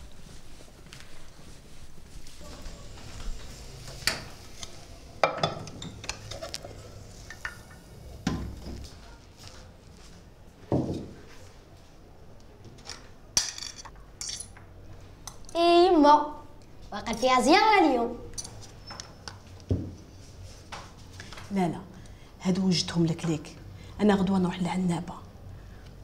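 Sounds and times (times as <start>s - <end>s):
dishes and cutlery clinking: 4.6s - 7.8s, 13.4s - 14.7s.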